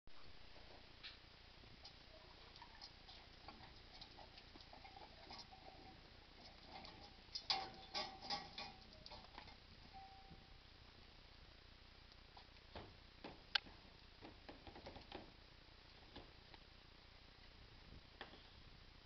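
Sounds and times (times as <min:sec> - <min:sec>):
hose clicking and rattling: 0:06.4 - 0:09.6.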